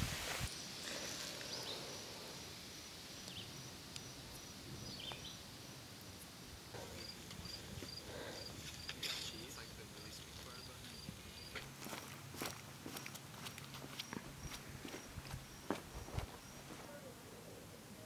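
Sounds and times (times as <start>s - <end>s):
soft hiss: 0.0s - 12.0s.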